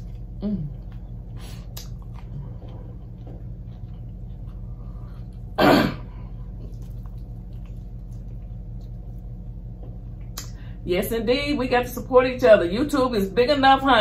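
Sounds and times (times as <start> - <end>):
steady low hum: 0.0 - 14.0
person coughing: 5.6 - 6.2.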